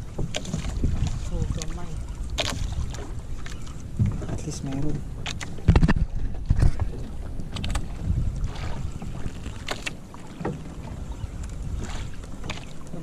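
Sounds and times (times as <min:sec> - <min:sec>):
water washing against boat hull: 0:00.0 - 0:13.0
wind buffeting microphone: 0:00.0 - 0:13.0.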